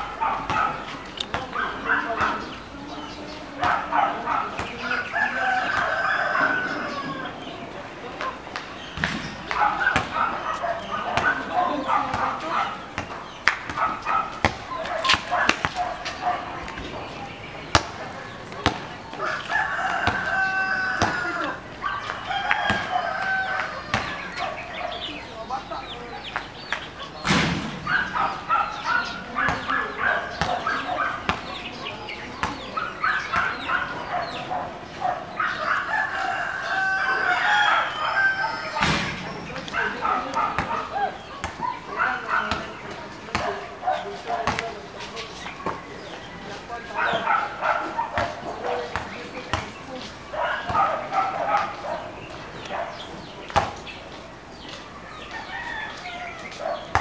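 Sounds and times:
birds chirping: 0:00.0 - 0:57.0
chickens clucking: 0:00.0 - 0:57.0
rooster crowing: 0:04.9 - 0:07.4, 0:19.2 - 0:21.6, 0:22.2 - 0:24.1, 0:35.6 - 0:38.8, 0:55.3 - 0:56.5.

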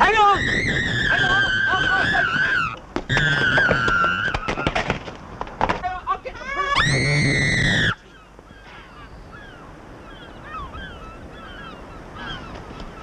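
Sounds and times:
girl screaming: 0:00.0 - 0:02.8, 0:06.4 - 0:08.0.

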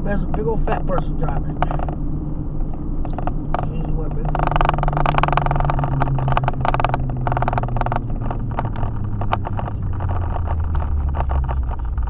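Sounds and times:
engine and road hum in car: 0:00.0 - 0:12.0.

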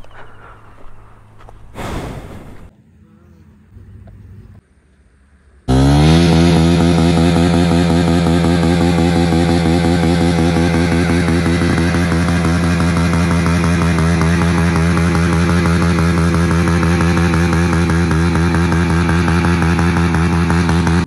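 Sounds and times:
motorcycle engine at high revs: 0:05.6 - 0:21.0.

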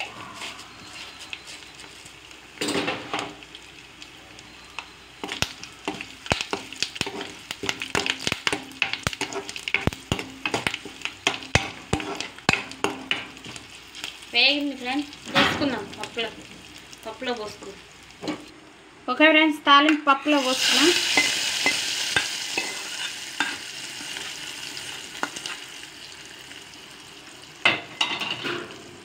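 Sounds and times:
spices sizzling in hot oil: 0:00.0 - 0:29.0
spoon scraping a pan: 0:05.2 - 0:13.6, 0:20.7 - 0:24.4.

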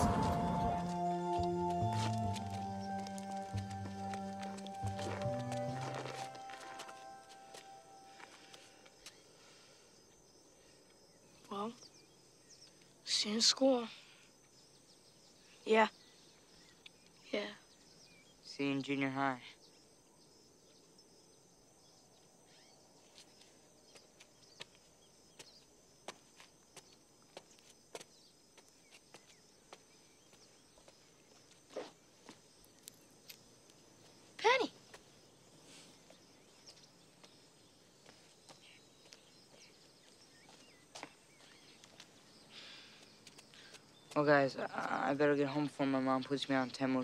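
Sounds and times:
light footsteps: 0:00.0 - 0:09.2, 0:23.0 - 0:34.2, 0:36.0 - 0:42.3, 0:43.0 - 0:44.3
high insect drone: 0:00.0 - 0:47.0
soft bird chirps: 0:00.9 - 0:47.0
bird chirps: 0:21.8 - 0:25.7, 0:34.1 - 0:47.0.

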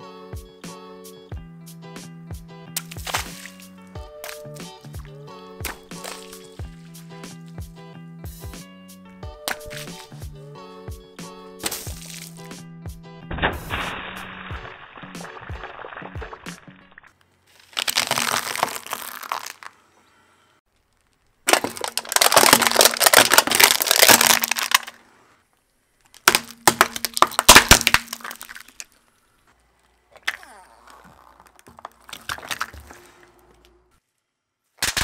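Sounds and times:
tyre crushing foam crunching: 0:02.8 - 0:05.0, 0:05.6 - 0:07.6, 0:11.6 - 0:12.5, 0:17.5 - 0:19.8, 0:21.4 - 0:25.0, 0:26.2 - 0:29.0, 0:30.2 - 0:33.6
plastic tubs cracking: 0:02.8 - 0:07.6, 0:09.4 - 0:10.2, 0:11.6 - 0:12.5, 0:13.3 - 0:19.8, 0:20.7 - 0:25.0, 0:26.0 - 0:29.0, 0:29.8 - 0:33.8, 0:34.8 - 0:35.0.

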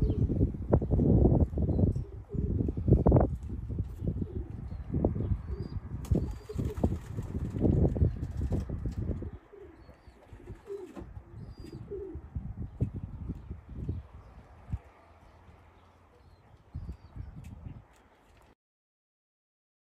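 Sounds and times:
pigeons cooing: 0:00.0 - 0:00.5, 0:01.9 - 0:03.0, 0:03.9 - 0:07.3, 0:09.0 - 0:12.6
small birds chirping: 0:03.9 - 0:18.5
pigeon wings flapping: 0:06.0 - 0:09.2.

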